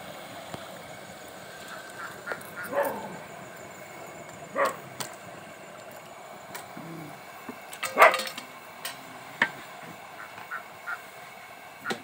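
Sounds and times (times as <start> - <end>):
food deep-frying in oil: 0.0 - 12.0
dog barking: 2.7 - 3.2, 4.6 - 4.8, 7.9 - 8.2.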